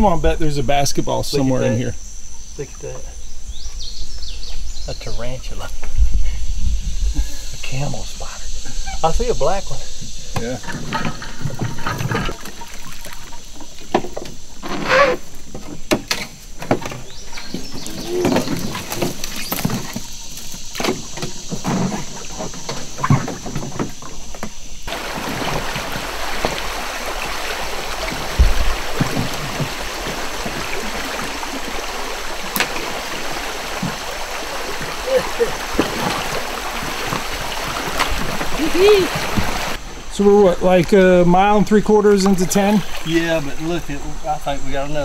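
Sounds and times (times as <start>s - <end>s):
kayak and paddle knocking on logs: 10.3s - 39.8s
shallow creek water rushing: 10.6s - 24.2s, 24.9s - 45.0s.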